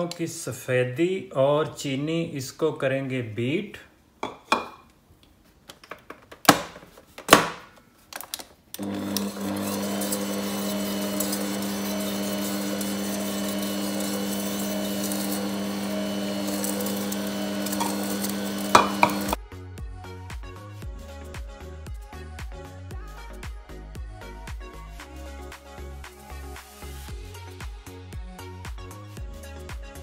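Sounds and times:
electric mixer running: 0:08.8 - 0:19.4.

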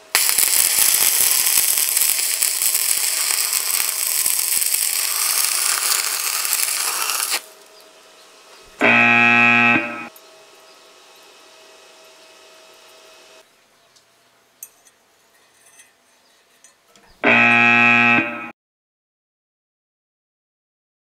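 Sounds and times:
buzzing electronic tone: 0:08.8 - 0:10.1, 0:17.2 - 0:18.5.

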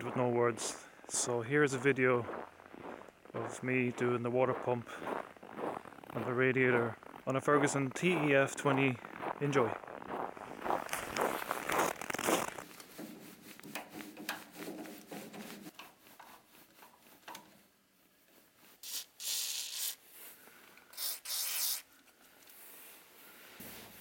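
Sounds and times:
clothing rustling: 0:09.8 - 0:17.2.

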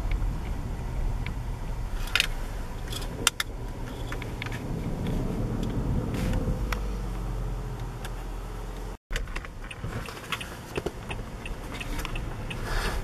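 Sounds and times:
sharp clicks and rattles: 0:00.0 - 0:06.8
car engine and road rumble: 0:00.0 - 0:13.0.

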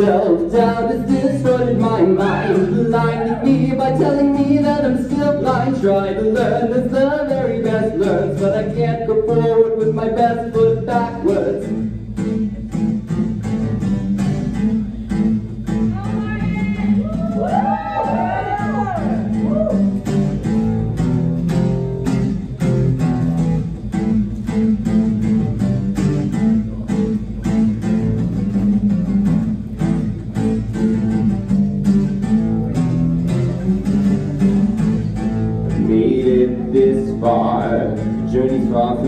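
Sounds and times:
person singing: 0:00.0 - 0:11.7, 0:35.7 - 0:39.0
acoustic guitar strumming chords: 0:00.0 - 0:39.0.

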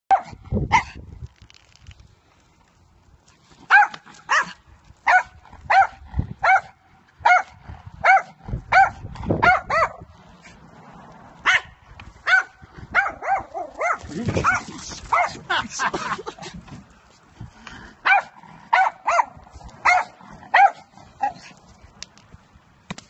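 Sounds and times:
small dog yapping: 0:12.3 - 0:15.4.

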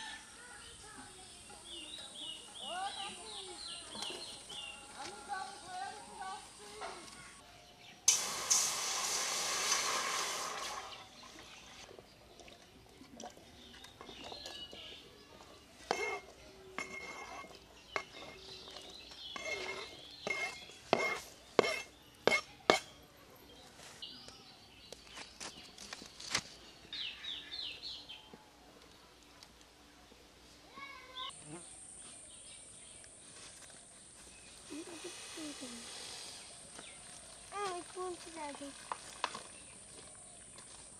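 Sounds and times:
loud hiss: 0:08.0 - 0:11.2, 0:34.5 - 0:37.6
metal utensil scraping cooking pot: 0:15.9 - 0:22.9.

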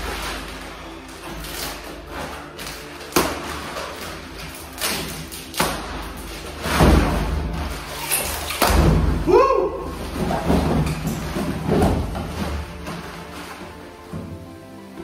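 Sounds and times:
plastic rustling: 0:00.0 - 0:15.0
mattress thudding on floor: 0:08.6 - 0:09.3, 0:10.0 - 0:13.4.

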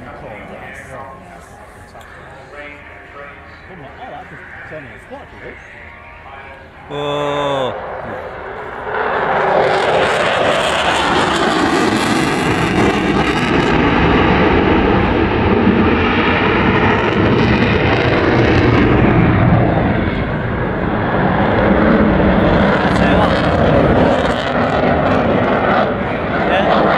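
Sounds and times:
jet fighter flying past: 0:07.6 - 0:26.9.

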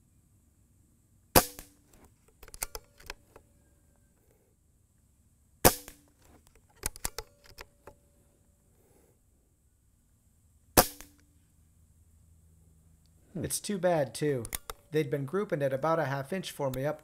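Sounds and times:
air pistol shot: 0:01.4 - 0:02.0, 0:05.6 - 0:06.1, 0:10.8 - 0:11.2
metallic bolt clicks: 0:01.5 - 0:03.4, 0:05.8 - 0:08.0, 0:14.4 - 0:14.9.

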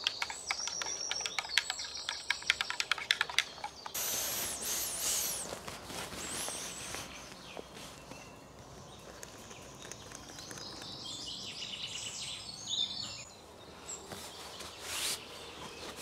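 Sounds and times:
small birds calling: 0:00.0 - 0:16.0
steady hiss: 0:03.9 - 0:07.4.

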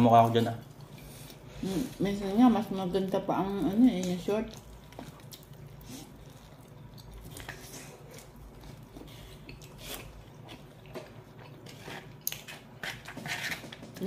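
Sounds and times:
chewing with soft crunching: 0:03.1 - 0:13.2.

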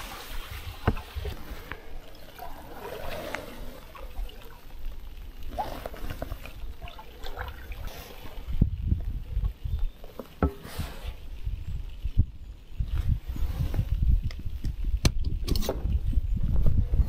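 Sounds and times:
paddle splashes: 0:00.0 - 0:08.6
water trickling off paddle: 0:00.0 - 0:12.2.

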